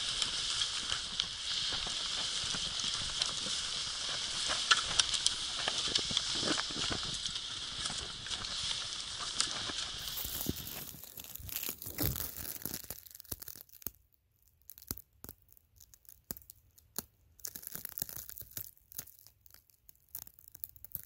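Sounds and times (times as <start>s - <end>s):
footsteps crunching in snow: 0.0s - 12.8s
plastic wrap crinkling: 0.0s - 21.0s.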